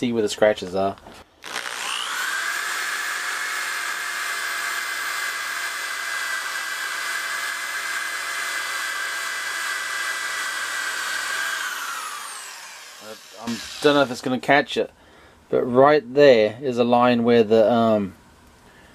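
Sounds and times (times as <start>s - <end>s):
orbital sander on metal: 1.4s - 14.3s.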